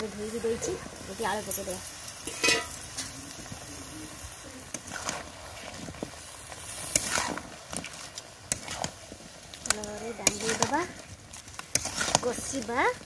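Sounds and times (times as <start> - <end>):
curry sizzling in a metal pan: 0.0 - 13.0
metal spatula scraping a pan: 2.2 - 3.1, 4.7 - 9.0, 9.6 - 13.0.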